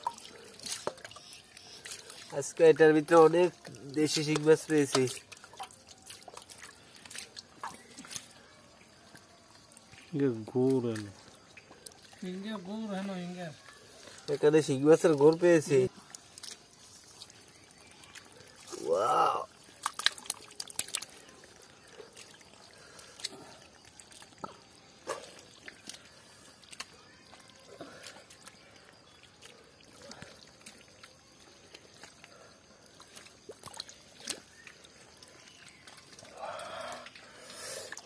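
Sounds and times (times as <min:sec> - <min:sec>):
hands sloshing through mud water: 0:00.0 - 0:38.0
small wet splashes: 0:00.0 - 0:38.0.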